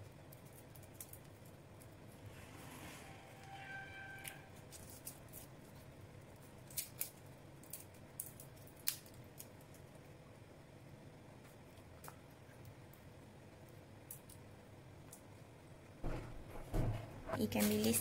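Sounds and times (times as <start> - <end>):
garlic skin crackling: 4.2 - 9.9.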